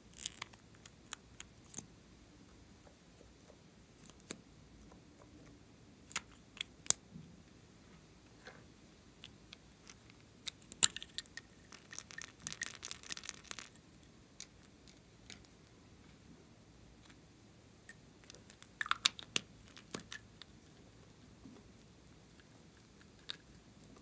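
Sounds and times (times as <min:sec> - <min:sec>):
plastic tubes clicking and rattling: 0:09.2 - 0:13.8, 0:18.2 - 0:20.5.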